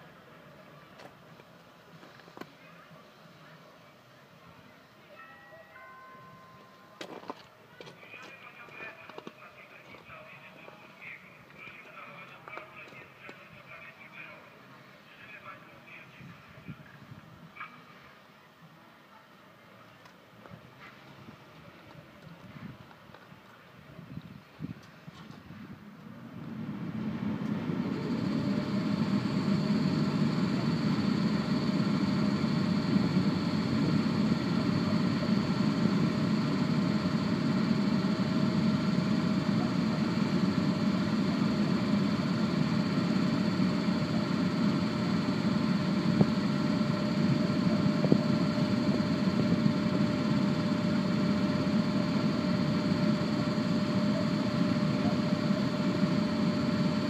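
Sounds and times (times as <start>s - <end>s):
cooling blowers humming: 25.6s - 57.0s
faint high whine: 25.6s - 57.0s.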